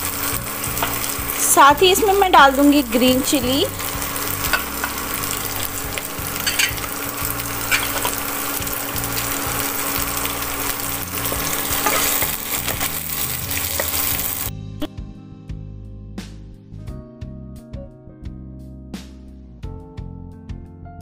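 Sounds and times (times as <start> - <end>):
vegetables sizzling in hot oil: 0.0 - 14.5
soft background music: 0.0 - 21.0.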